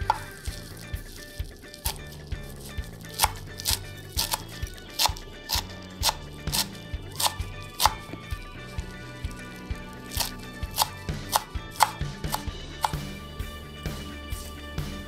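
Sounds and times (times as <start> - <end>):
knife chopping on wooden board: 0.0 - 0.6, 1.7 - 8.2, 10.0 - 13.1
background music: 0.0 - 15.0.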